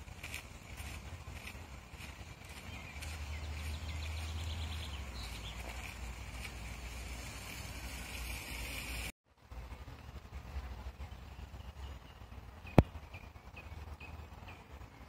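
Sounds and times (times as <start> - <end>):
low steady rumble: 0.0 - 15.0
faint birds calling: 0.2 - 6.5.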